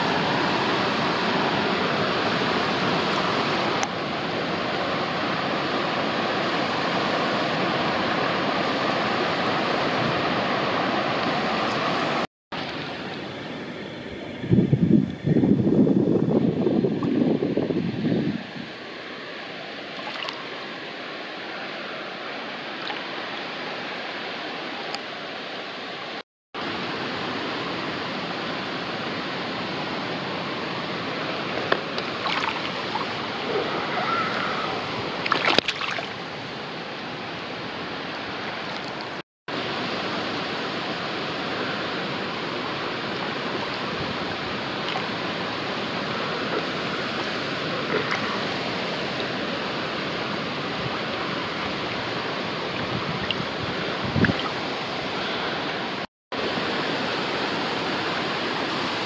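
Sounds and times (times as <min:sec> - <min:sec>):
river water running: 0:00.0 - 0:59.0
water splashes: 0:16.8 - 0:59.0.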